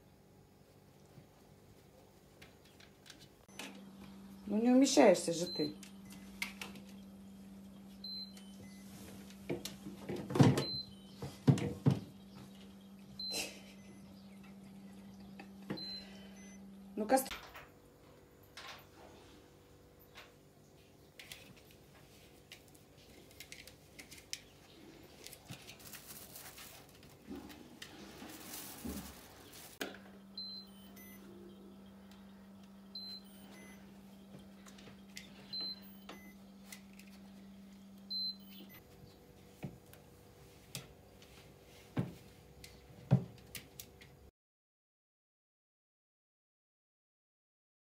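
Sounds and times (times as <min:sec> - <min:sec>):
steady low hum: 0:00.0 - 0:44.2
refrigerator door alarm beeps: 0:05.2 - 0:06.3, 0:08.0 - 0:08.9, 0:10.5 - 0:11.4, 0:13.1 - 0:14.2, 0:15.8 - 0:16.6, 0:30.3 - 0:31.6, 0:32.9 - 0:33.9, 0:35.4 - 0:36.5, 0:38.1 - 0:38.8
faint rustling: 0:24.8 - 0:29.8.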